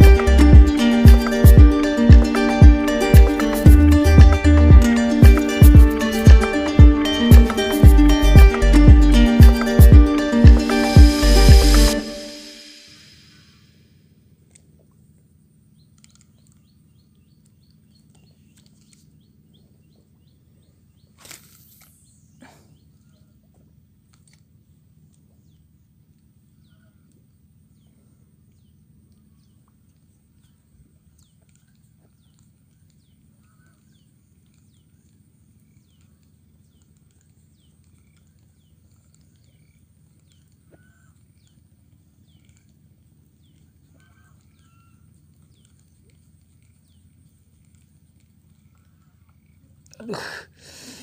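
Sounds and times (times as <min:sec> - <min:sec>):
low steady hum: 0:00.0 - 0:50.6
brief whoosh: 0:10.8 - 0:13.9.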